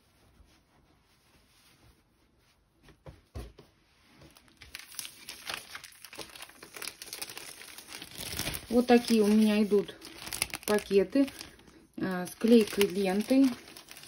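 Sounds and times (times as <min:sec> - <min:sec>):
plastic bag crinkling: 0:04.3 - 0:14.0.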